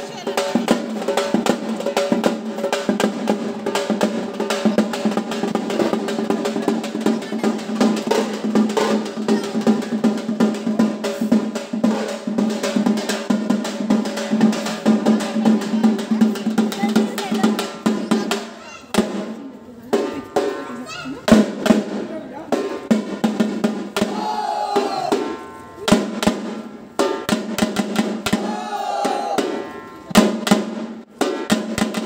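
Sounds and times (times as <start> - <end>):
fast snare drum rolls: 21.2 - 32.0.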